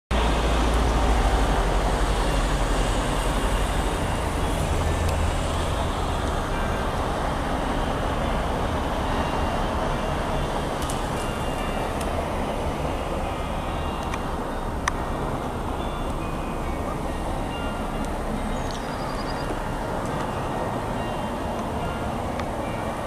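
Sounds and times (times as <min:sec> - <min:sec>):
cars driving on snowy road: 0:00.1 - 0:23.0.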